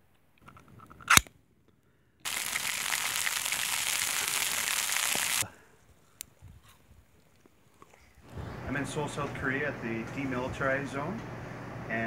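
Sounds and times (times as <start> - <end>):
food sizzling in frying pan: 2.3 - 5.4.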